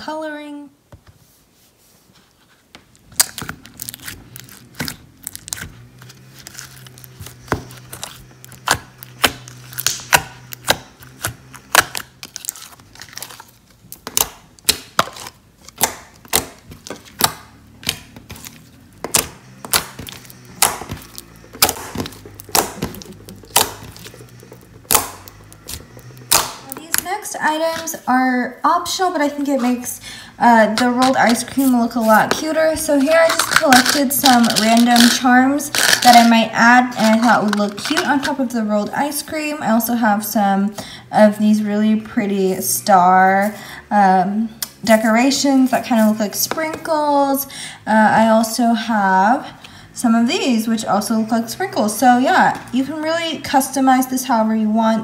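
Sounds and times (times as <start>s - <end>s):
slime clicking and popping: 7.0s - 18.4s, 19.0s - 27.2s.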